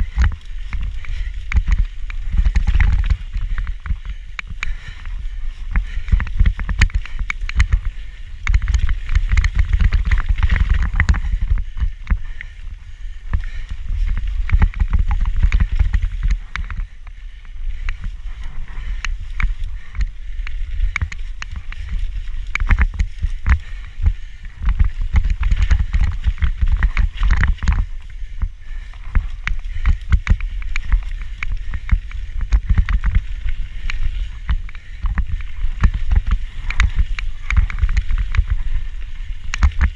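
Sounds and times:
camera rattling in mount: 0:02.0 - 0:03.3, 0:08.4 - 0:11.2, 0:14.5 - 0:16.8, 0:25.0 - 0:27.8.

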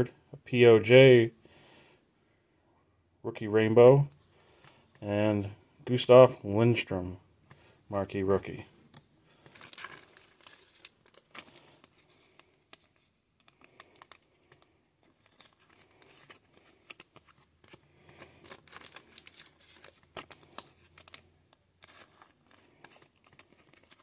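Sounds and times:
plastic card sleeve crinkling: 0:07.5 - 0:24.0.

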